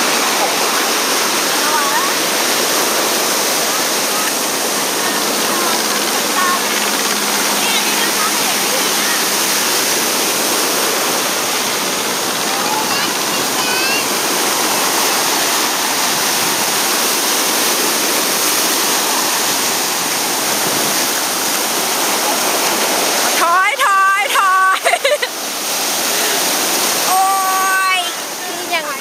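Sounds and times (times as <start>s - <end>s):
ocean surf breaking: 0.0s - 29.0s.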